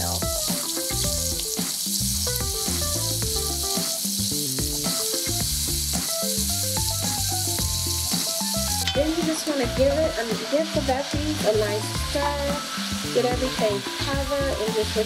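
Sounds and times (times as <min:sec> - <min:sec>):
background music: 0:00.0 - 0:15.0
vegetables sizzling in hot oil: 0:00.0 - 0:15.0.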